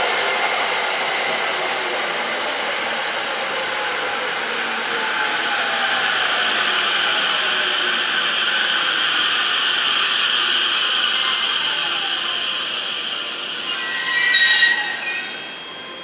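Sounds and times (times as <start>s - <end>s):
train wheels rushing on rail: 0.0s - 16.0s
high-pitched squeal: 13.0s - 16.0s.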